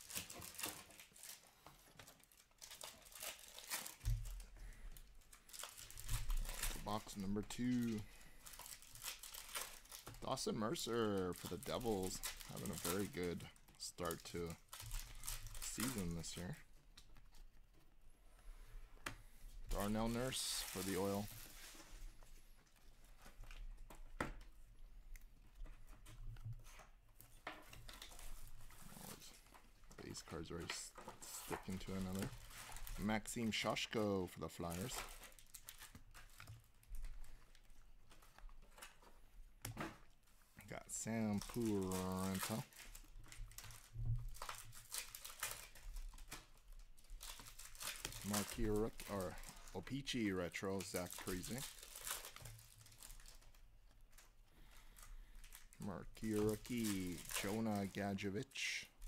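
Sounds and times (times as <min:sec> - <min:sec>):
card pack wrappers crinkling: 0:00.0 - 0:17.8, 0:19.7 - 0:24.7, 0:26.6 - 0:59.0
cards shuffled by hand: 0:05.8 - 0:17.5, 0:40.9 - 0:42.7, 0:47.3 - 0:52.7, 0:56.2 - 0:58.8.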